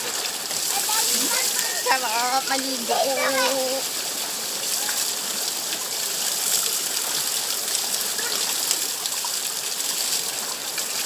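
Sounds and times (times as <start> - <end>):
water splashing on rocks: 0.0 - 4.0
small waterfall rushing: 0.0 - 11.0.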